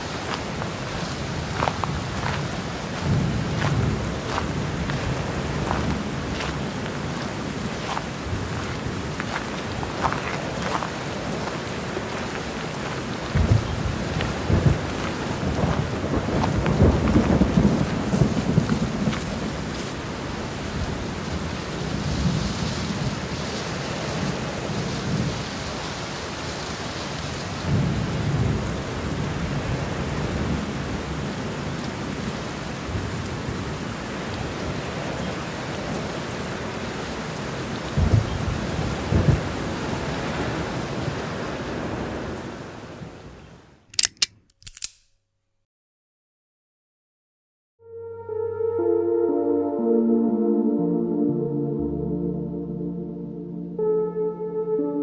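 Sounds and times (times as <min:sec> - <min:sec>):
steady rain falling: 0:00.0 - 0:43.8
low rolls of thunder: 0:01.3 - 0:10.0, 0:13.2 - 0:25.6, 0:27.6 - 0:35.2, 0:37.9 - 0:43.2.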